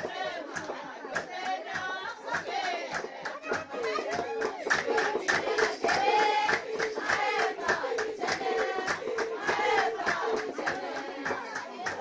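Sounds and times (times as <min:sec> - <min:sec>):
rhythmic hand clapping: 0:00.0 - 0:12.0
women singing together: 0:00.0 - 0:12.0.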